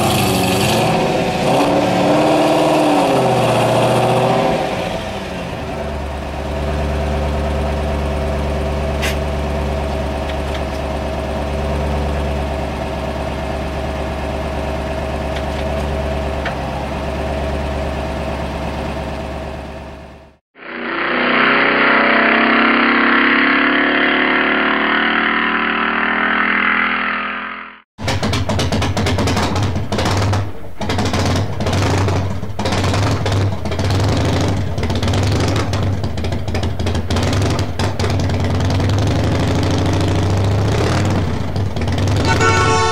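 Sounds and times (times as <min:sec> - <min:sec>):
rough engine sound: 0:00.0 - 0:42.9
car engine idling: 0:04.9 - 0:20.4, 0:28.0 - 0:42.9.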